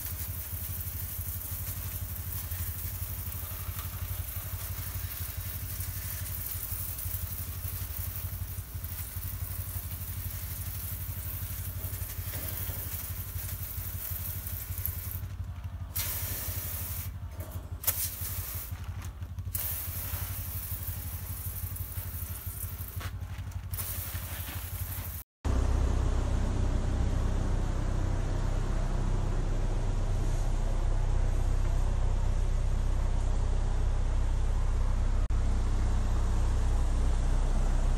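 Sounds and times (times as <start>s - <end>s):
liquid sprayer hissing: 0.0s - 25.3s
low mechanical hum: 0.0s - 37.9s.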